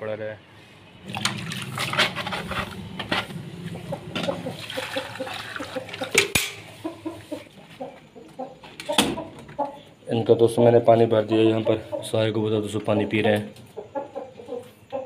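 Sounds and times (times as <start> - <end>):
water pouring into plastic bowl: 1.0 - 2.3, 4.4 - 6.2
birds calling: 3.4 - 10.1.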